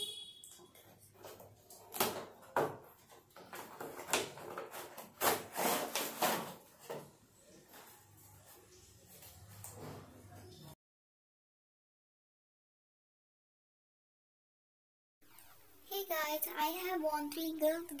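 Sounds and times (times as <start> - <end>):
cardboard scraping on cardboard: 3.6 - 6.7.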